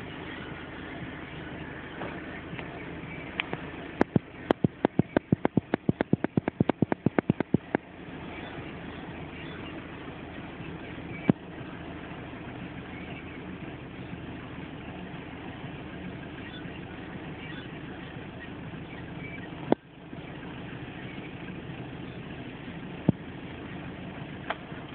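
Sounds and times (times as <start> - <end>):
low background rumble: 0.0 - 24.9.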